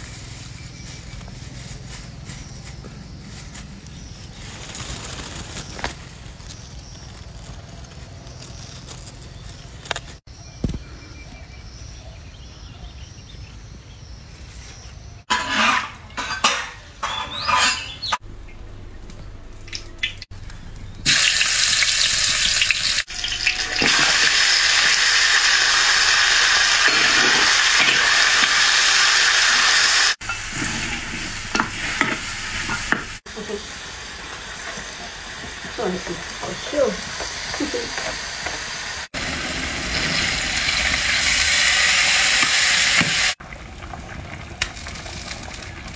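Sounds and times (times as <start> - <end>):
clatters and scrapes: 14.5 - 18.2
meat sizzling in a wok: 21.0 - 43.4.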